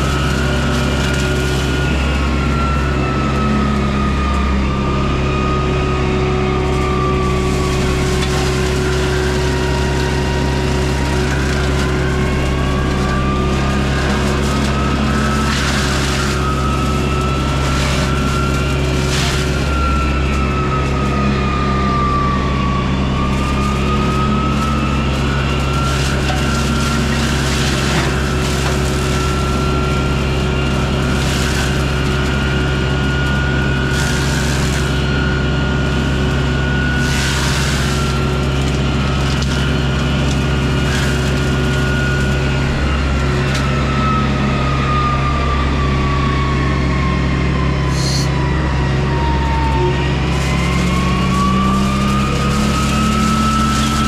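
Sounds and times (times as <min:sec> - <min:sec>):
diesel engine running under load: 0:00.0 - 0:54.0
hydraulic mulcher whining: 0:00.0 - 0:54.0
wood cracking: 0:06.6 - 0:43.8, 0:50.2 - 0:54.0.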